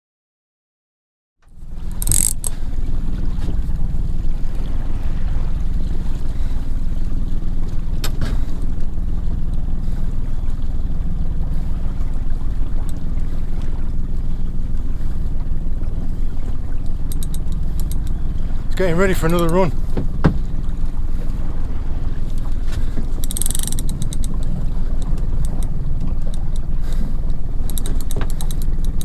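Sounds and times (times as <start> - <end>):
wind rumble on microphone: 1.6 - 29.0
sharp click: 2.0 - 2.6, 16.9 - 18.2, 23.2 - 26.7, 27.6 - 29.0.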